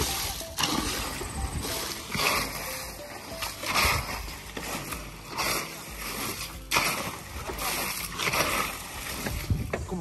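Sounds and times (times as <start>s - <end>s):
hoe and shovel scraping concrete: 0.0s - 9.6s
water splashing from bucket: 0.0s - 10.0s.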